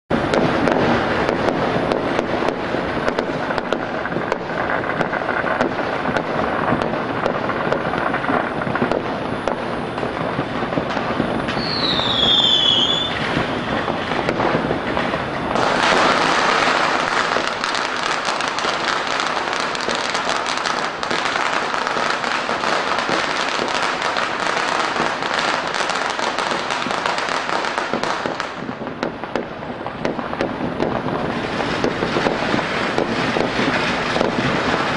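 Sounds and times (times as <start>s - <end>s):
fireworks crackling and popping: 0.1s - 34.9s
firework whistle falling in pitch: 11.5s - 13.6s.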